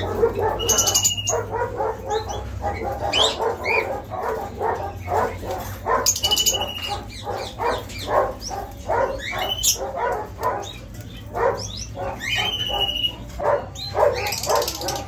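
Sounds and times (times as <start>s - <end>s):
dog barking: 0.0s - 15.0s
bird whistles: 0.6s - 1.5s, 6.2s - 7.1s, 12.2s - 13.2s.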